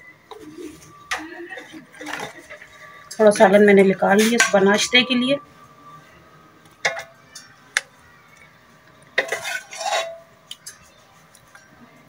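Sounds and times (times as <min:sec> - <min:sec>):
metal spoon clinking on pot: 0:09.2 - 0:10.9.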